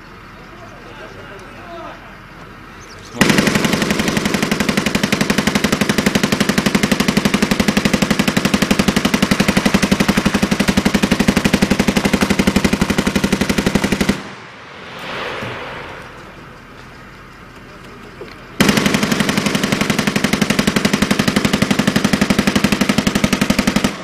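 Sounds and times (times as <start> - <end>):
machine gun firing burst: 3.2 - 14.4, 18.6 - 24.0.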